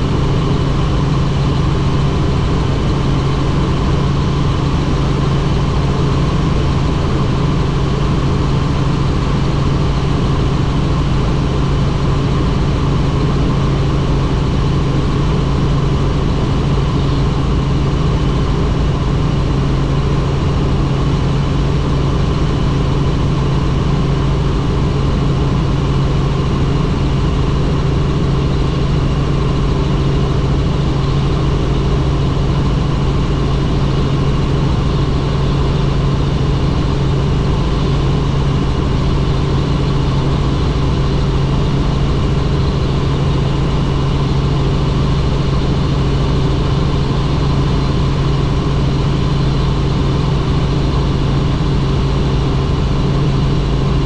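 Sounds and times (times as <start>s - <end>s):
helicopter engine and rotors drone: 0.0s - 54.0s.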